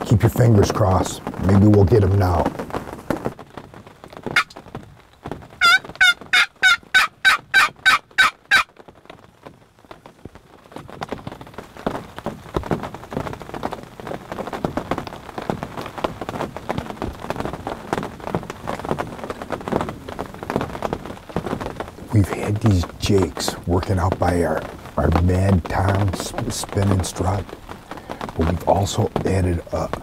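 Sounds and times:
rain falling: 0.0 - 30.0
turkey yelps: 5.6 - 8.7.

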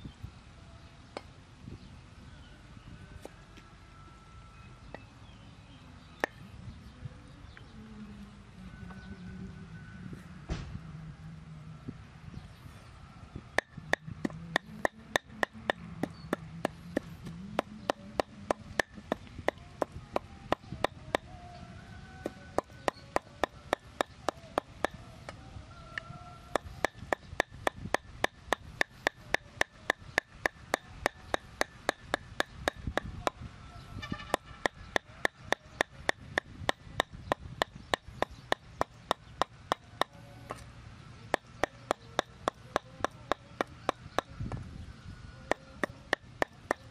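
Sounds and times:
cleaver chopping on wooden board: 13.6 - 21.2, 26.5 - 33.4.

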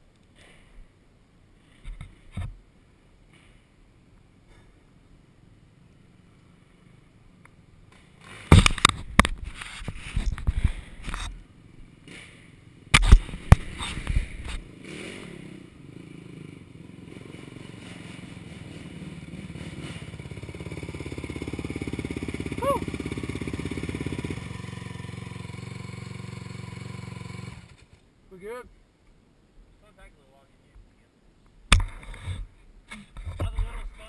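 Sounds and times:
knocks and scrapes: 7.9 - 11.4, 13.0 - 15.3, 31.8 - 34.0
quad engine running: 11.7 - 27.9.

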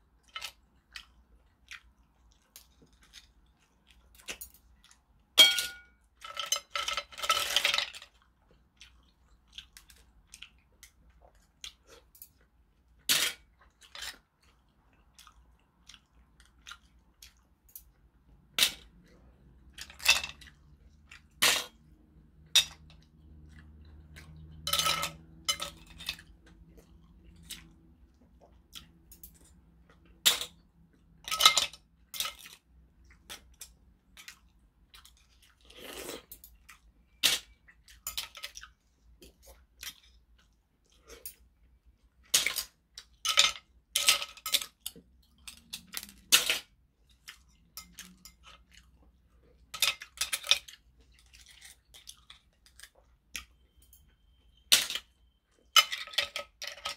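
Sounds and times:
chewing: 0.1 - 5.4, 8.0 - 22.1, 22.9 - 24.6, 25.2 - 30.2, 47.0 - 54.2.

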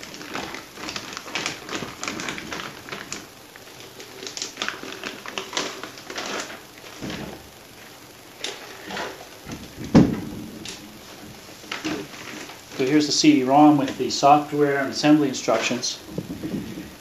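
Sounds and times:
plastic bag crinkling: 0.0 - 17.0
low thump: 9.5 - 10.6.

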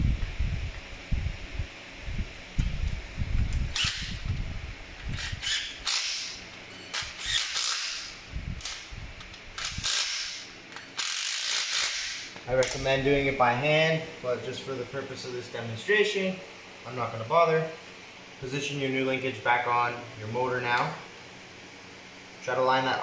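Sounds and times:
cordless driver bursts: 3.7 - 4.2, 5.1 - 8.9, 9.6 - 12.4.

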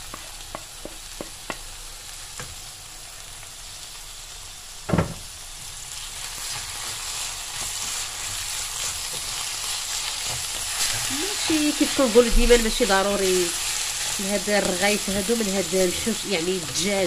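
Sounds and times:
onion and chicken sizzling in oil: 0.0 - 17.0
wooden spoon stirring: 14.6 - 16.9.

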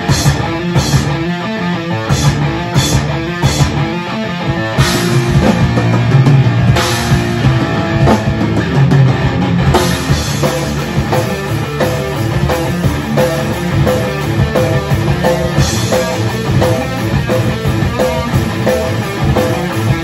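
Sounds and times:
rock band playing: 0.0 - 20.0.

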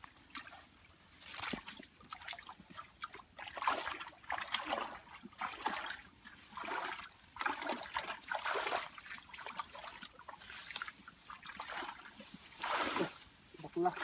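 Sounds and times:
feet splashing in muddy water: 0.0 - 14.0.

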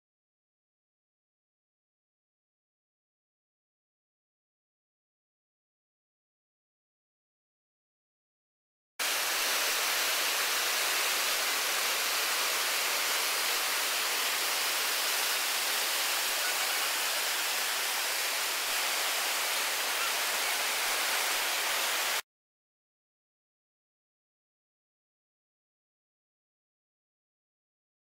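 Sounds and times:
river rapid rushing: 9.0 - 22.2.

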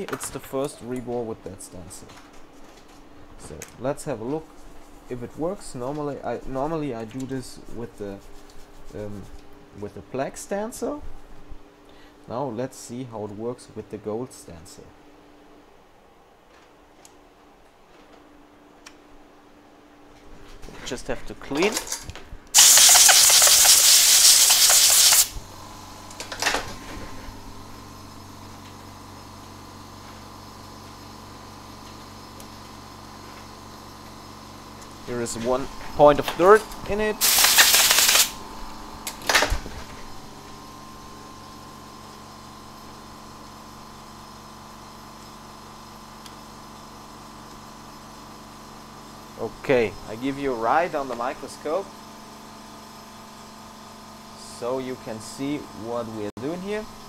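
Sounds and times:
low equipment hum: 0.0 - 57.0
pressurised spray hissing: 22.6 - 25.4, 37.2 - 38.4.

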